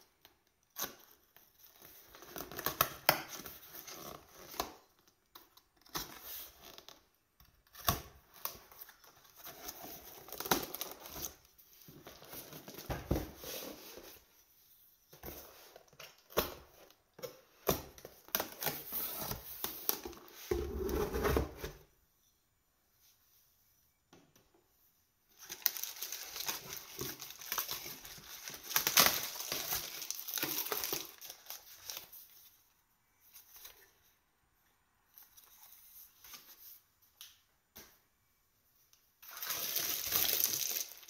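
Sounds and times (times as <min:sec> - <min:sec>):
cardboard and bubble wrap rustling: 0:25.3 - 0:32.7, 0:39.2 - 0:41.0.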